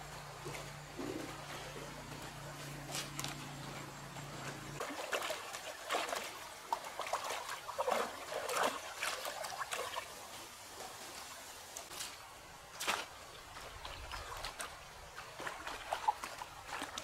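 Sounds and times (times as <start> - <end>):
low steady hum: 0.0 - 9.9
water splashing and dribbling: 0.0 - 17.0.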